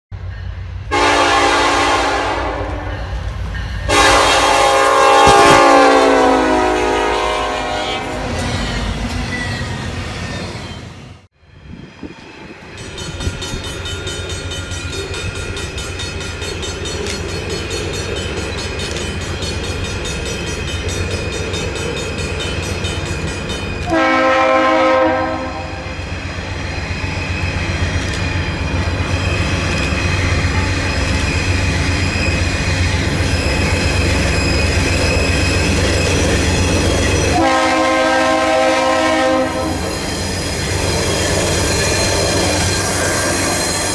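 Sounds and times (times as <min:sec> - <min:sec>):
train running by: 0:00.1 - 0:43.9
locomotive air horn blasts: 0:00.9 - 0:03.1, 0:03.9 - 0:08.5, 0:23.8 - 0:26.0, 0:37.3 - 0:40.0.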